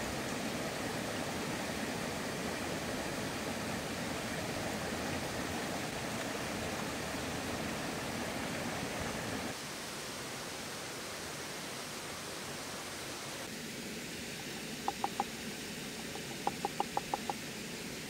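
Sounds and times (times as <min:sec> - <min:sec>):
waterfall rushing: 0:00.0 - 0:09.6, 0:14.4 - 0:18.0
wooden mortar tapping: 0:14.9 - 0:15.3, 0:16.0 - 0:17.4.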